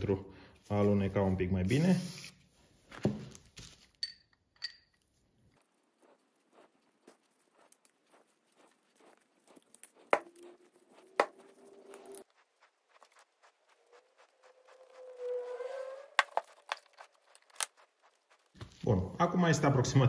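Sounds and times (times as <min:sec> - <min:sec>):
small metal clicks and clinks: 0:04.0 - 0:05.1.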